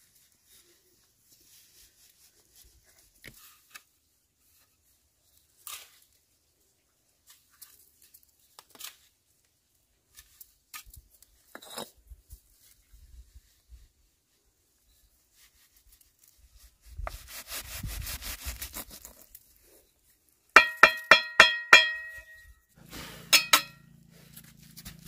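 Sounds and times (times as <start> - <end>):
trowel scraping and tapping bricks: 10.7 - 12.0, 20.6 - 22.4, 23.3 - 23.8
sharp knocks: 20.6 - 22.4.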